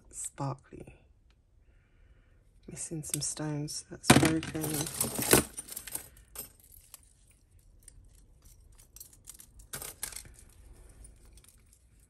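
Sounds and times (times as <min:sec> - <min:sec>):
metal jewellery clinking: 0:04.1 - 0:12.0.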